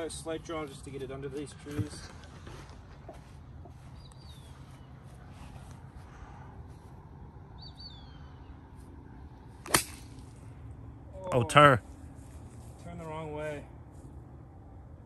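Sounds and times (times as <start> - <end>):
low outdoor rumble: 0.0 - 15.0
bird calling: 1.9 - 6.2, 7.5 - 8.7.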